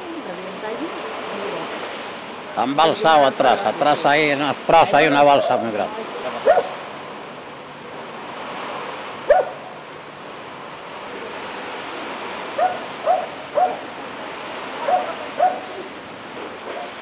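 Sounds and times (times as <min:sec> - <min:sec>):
rushing floodwater: 0:00.0 - 0:17.0
dog barking: 0:06.4 - 0:06.8, 0:09.3 - 0:09.6, 0:12.6 - 0:13.8, 0:14.8 - 0:15.8.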